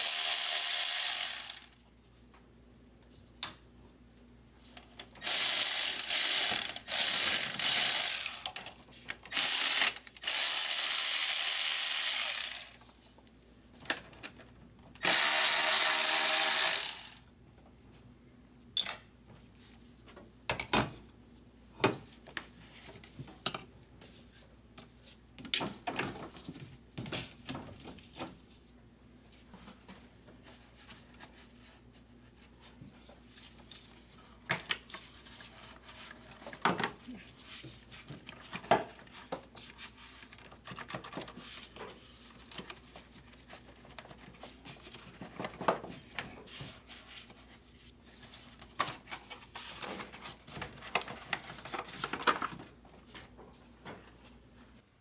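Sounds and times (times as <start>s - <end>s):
power ratchet running: 0.0s - 1.7s, 5.2s - 8.5s, 9.3s - 12.8s, 15.0s - 17.2s.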